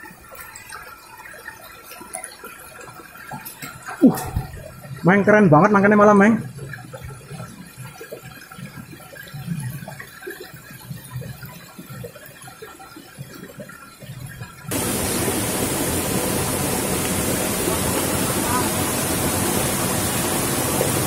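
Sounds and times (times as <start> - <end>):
stream water rushing: 14.7 - 21.0.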